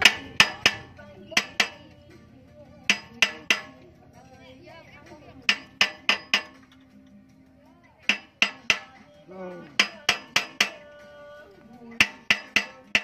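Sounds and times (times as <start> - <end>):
metal-on-metal strikes ringing: 0.0 - 2.0, 2.9 - 3.8, 5.5 - 6.7, 8.0 - 9.1, 9.7 - 10.9, 12.0 - 13.0.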